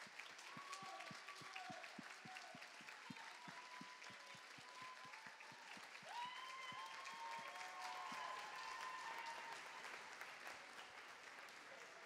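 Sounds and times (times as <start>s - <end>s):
audience applauding: 0.0s - 12.0s
whoops: 0.4s - 1.8s, 3.0s - 9.9s.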